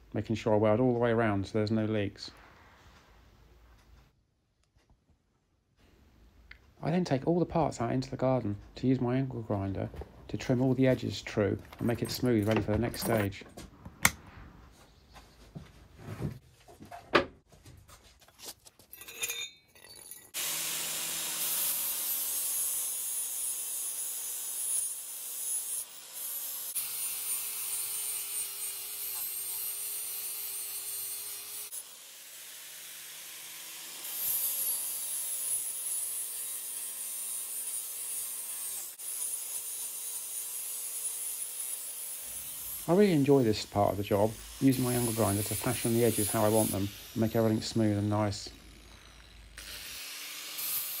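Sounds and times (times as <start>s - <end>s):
angle grinder grinding steel: 18.9s - 51.0s.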